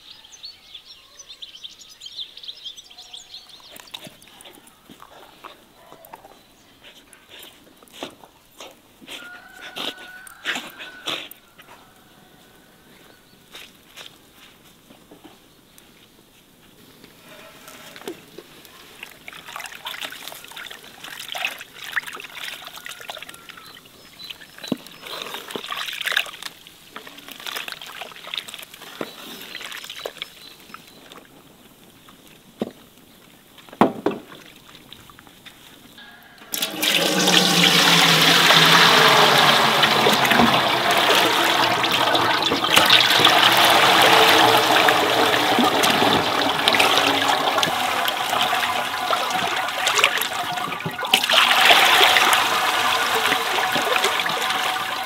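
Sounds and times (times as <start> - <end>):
small splashes and knocks: 18.1 - 31.3, 33.7 - 35.3, 37.6 - 55.0
rush of liquid in pot: 36.5 - 55.0.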